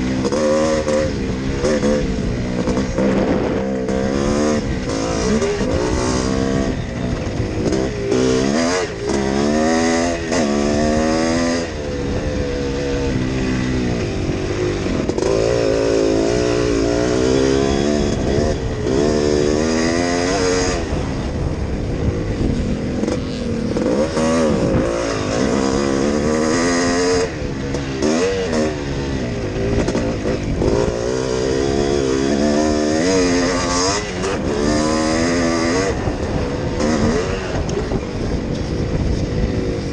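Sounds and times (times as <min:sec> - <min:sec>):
motocross engine revving: 0:00.0 - 0:39.9.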